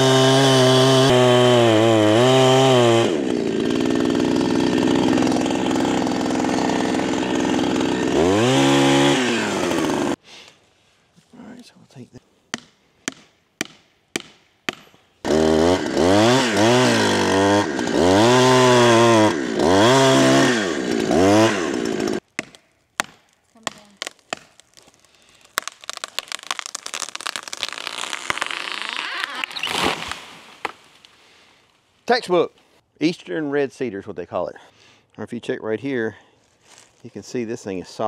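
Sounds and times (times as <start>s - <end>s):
chainsaw revving: 0.0s - 10.2s, 15.2s - 22.2s
tree cracking and crashing: 21.9s - 31.2s.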